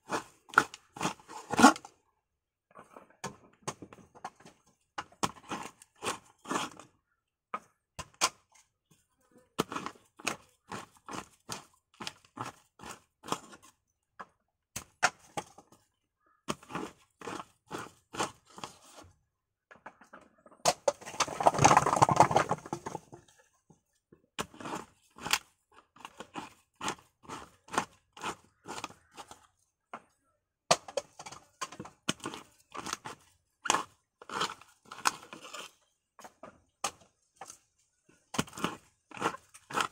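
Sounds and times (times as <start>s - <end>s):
scraping crunch: 20.9s - 23.4s.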